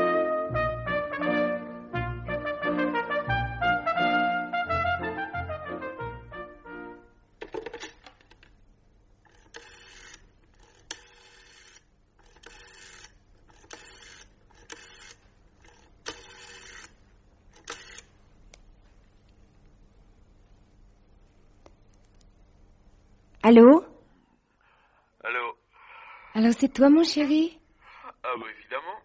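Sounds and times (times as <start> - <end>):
brass chord: 0.0 - 7.3
rotary telephone dial whirring: 9.2 - 18.1.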